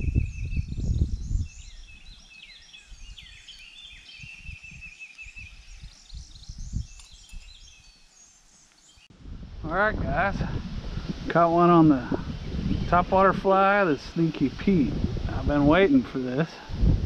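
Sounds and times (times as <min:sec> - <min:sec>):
wind buffeting microphone: 0:00.0 - 0:08.0, 0:09.1 - 0:17.0
bird trill: 0:00.0 - 0:09.1
birds singing and chirping: 0:00.0 - 0:09.1, 0:10.9 - 0:16.2.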